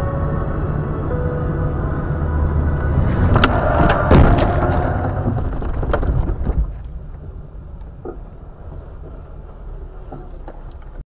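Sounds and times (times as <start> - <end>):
heavy rumble and rattling: 0.0 - 11.0
car crash bangs and crunching: 2.9 - 6.8.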